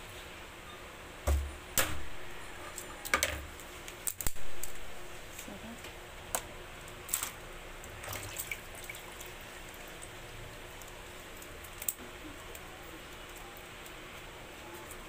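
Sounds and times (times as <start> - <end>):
water dripping: 7.1 - 12.0.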